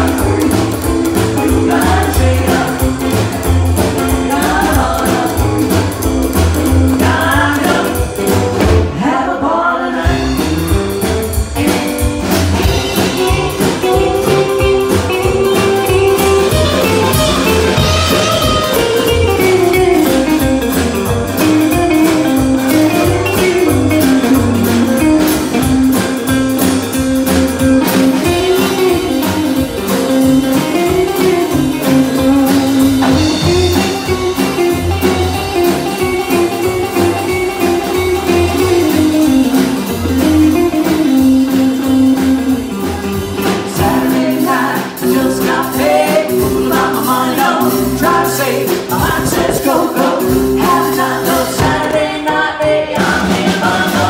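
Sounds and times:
person singing: 0.0s - 10.5s, 43.4s - 54.0s
live rock and roll band: 0.0s - 54.0s.

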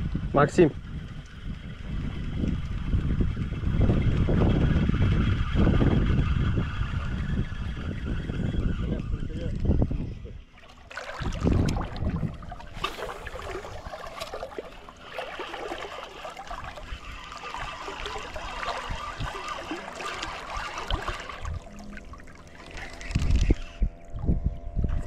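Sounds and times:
water splashing and trickling: 10.5s - 25.0s.

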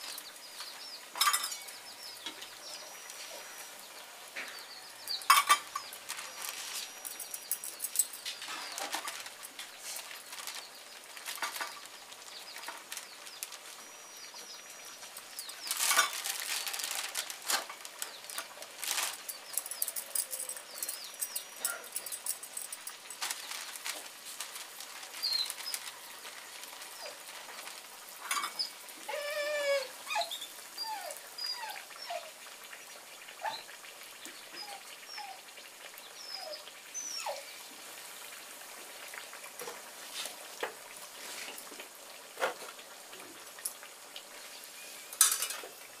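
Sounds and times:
plastic sheet crinkling: 5.5s - 13.8s, 15.0s - 21.0s, 21.8s - 28.5s
birds chirping: 19.3s - 22.8s.

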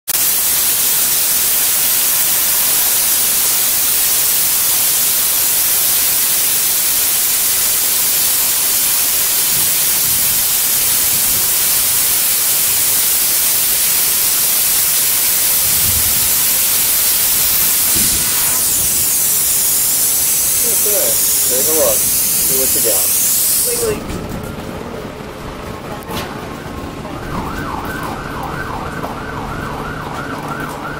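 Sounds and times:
plasma cutter arc hissing: 0.2s - 24.1s.

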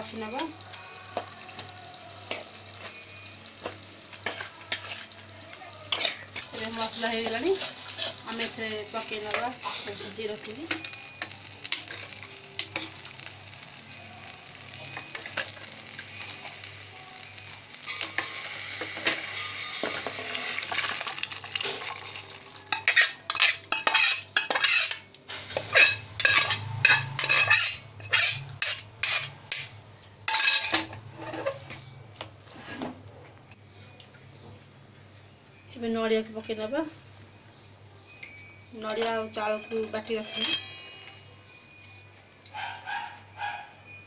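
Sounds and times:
paste sizzling in hot oil: 0.1s - 31.7s
metal spoon scraping and splashing: 5.9s - 8.6s, 21.6s - 29.7s, 39.8s - 41.1s.

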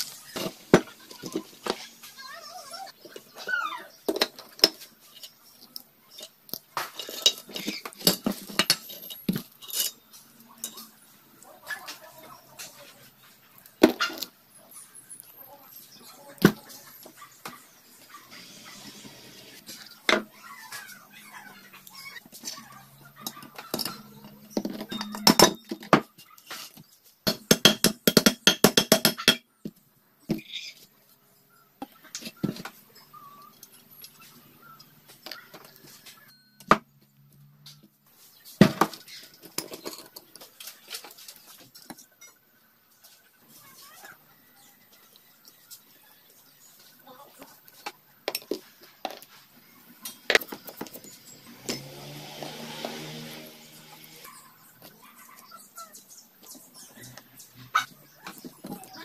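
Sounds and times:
metal engine parts clanking: 6.2s - 10.9s, 23.2s - 26.0s
hammer tapping on metal: 27.3s - 29.4s.

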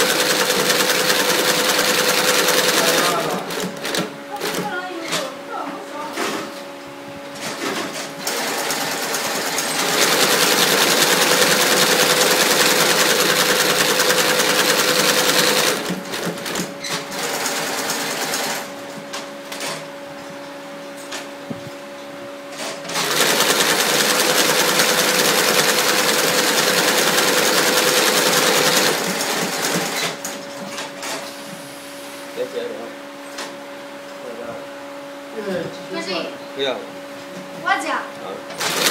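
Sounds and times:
sewing machine stitching: 0.0s - 4.7s, 8.2s - 18.6s, 22.9s - 30.2s, 38.6s - 38.9s.

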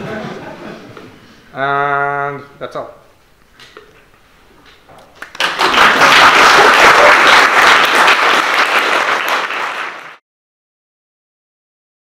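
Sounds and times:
audience applause: 5.2s - 10.2s.

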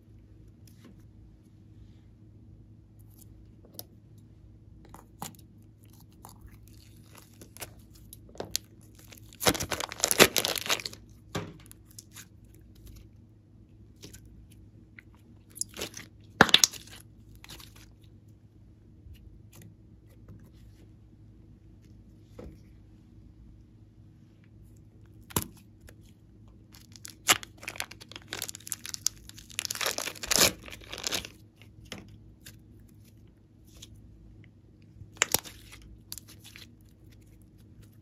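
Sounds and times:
faint steady hum: 0.0s - 38.0s
slime clicking and popping: 35.2s - 35.6s.

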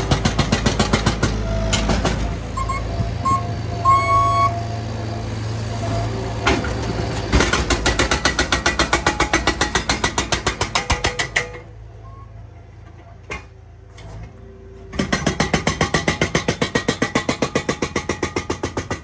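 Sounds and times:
hydraulic breaker hammering concrete: 0.0s - 2.2s, 7.3s - 11.7s, 14.9s - 19.0s
loader engine running: 0.0s - 15.4s.

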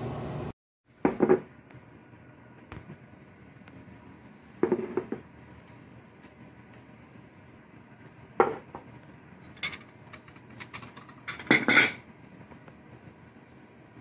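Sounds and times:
dish knocking on wooden table: 1.0s - 1.5s, 4.6s - 5.2s, 8.4s - 8.8s
dishes and spoons clattering: 9.5s - 12.1s.

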